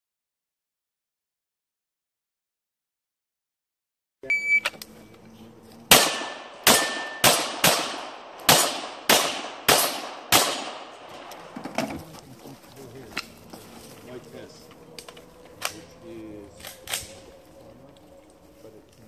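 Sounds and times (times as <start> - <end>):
handgun shots: 5.9 - 11.3.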